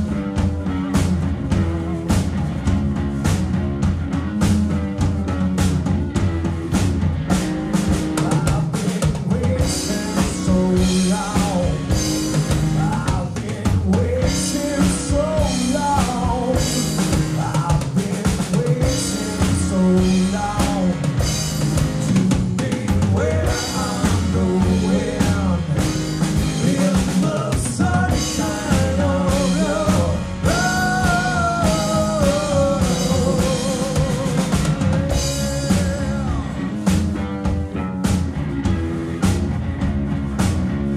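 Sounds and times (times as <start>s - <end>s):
bass guitar: 0.0s - 40.9s
drum kit beat: 0.0s - 40.9s
electric guitar: 0.0s - 40.9s
lead vocals singing: 8.0s - 37.2s.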